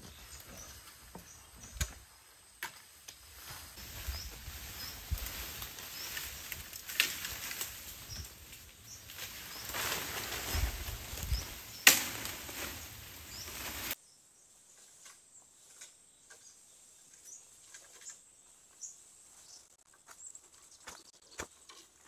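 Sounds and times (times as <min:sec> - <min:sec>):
rustling bamboo foliage: 0:00.0 - 0:22.0
footsteps on dry leaves: 0:03.2 - 0:14.0
pole dragged on leaf litter: 0:03.3 - 0:14.0
sharp crack: 0:09.2 - 0:14.0.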